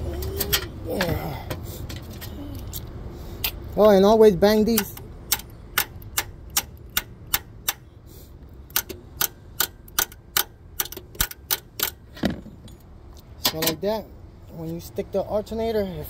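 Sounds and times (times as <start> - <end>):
hand tool clicking: 4.7 - 7.8, 8.7 - 12.0.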